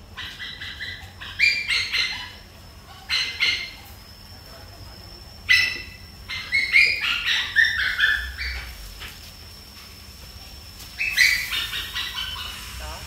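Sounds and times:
animal high-pitched calls: 0:00.0 - 0:04.0, 0:05.4 - 0:08.8, 0:11.0 - 0:13.0
faint steady high whine: 0:00.0 - 0:13.0.

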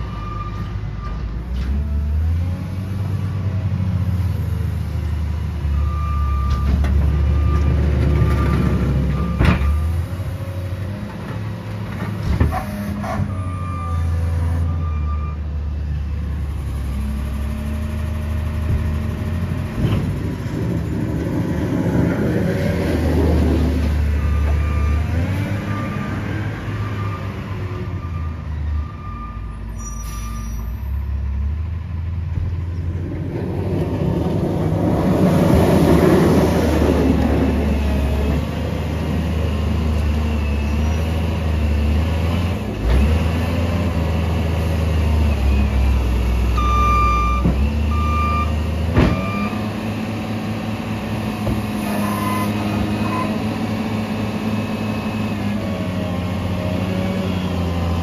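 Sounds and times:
garbage truck running: 0:00.0 - 0:29.0, 0:30.8 - 0:58.0
loader engine revving: 0:00.0 - 0:30.2, 0:30.8 - 0:58.0.

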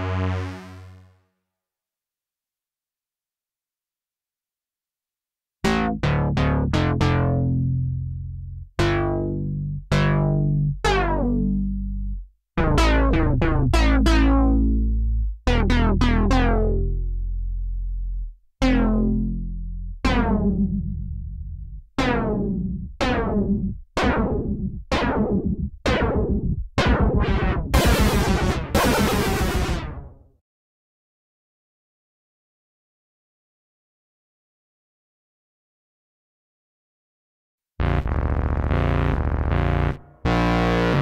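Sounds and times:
synthesizer bass notes: 0:00.0 - 0:01.2, 0:05.6 - 0:30.2, 0:37.8 - 0:41.0.

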